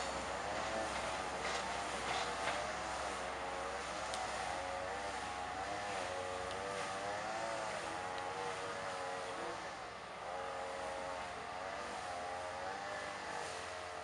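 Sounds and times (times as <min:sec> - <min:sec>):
train diesel engine: 0:00.0 - 0:04.6.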